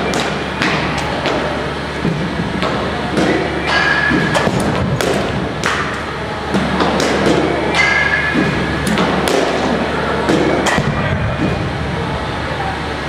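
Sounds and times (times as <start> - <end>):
bat hitting softball: 2.6 - 11.6.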